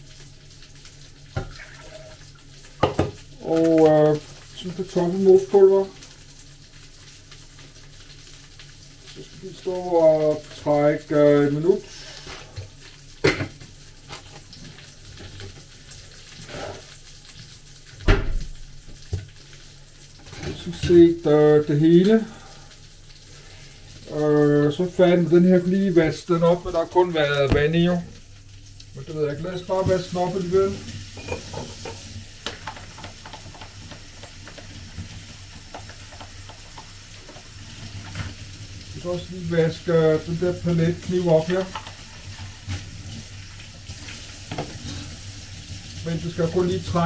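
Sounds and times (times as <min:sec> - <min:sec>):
tap water running into sink: 0:01.2 - 0:06.2, 0:17.4 - 0:19.4, 0:25.9 - 0:47.0.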